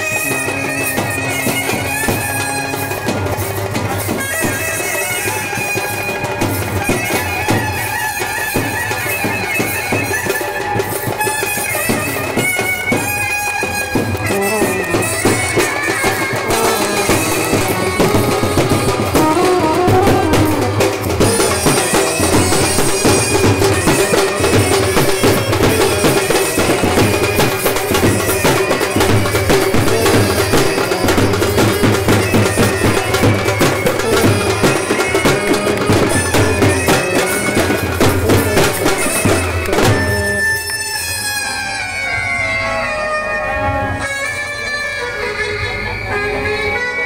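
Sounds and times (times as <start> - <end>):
clarinet and brass melody: 0.0 - 47.0
bass drum and side drums: 6.1 - 40.4.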